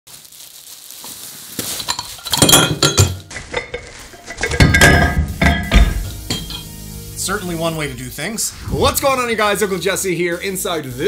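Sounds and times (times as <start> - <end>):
plastic bag crinkling: 0.1 - 4.6.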